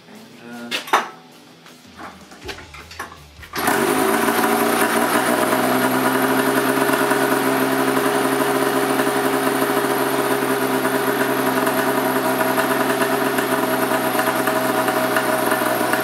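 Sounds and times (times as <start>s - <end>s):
snowmobile engine starting and idling: 3.4s - 16.0s.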